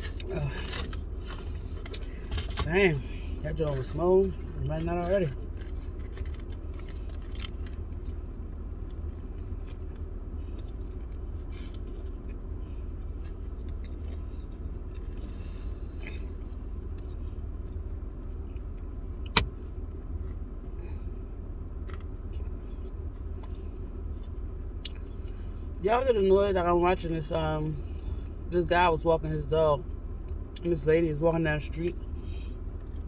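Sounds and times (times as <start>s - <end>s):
car cabin hum: 0.0s - 33.0s
person chewing food: 13.1s - 17.2s.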